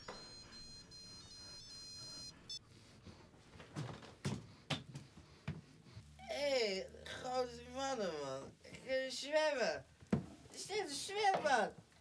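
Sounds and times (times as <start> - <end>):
electronic beeping alarm tones: 0.0 - 2.6.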